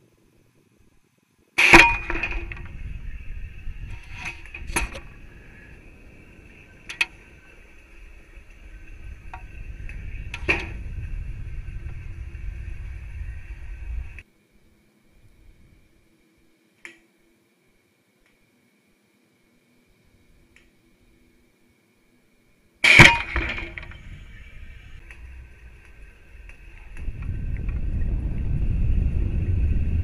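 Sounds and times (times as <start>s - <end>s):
high whine: 1.5s - 16.6s, 22.1s - 30.0s
low rumble: 2.0s - 14.2s, 23.1s - 30.0s
sharp bang: 22.8s - 24.2s.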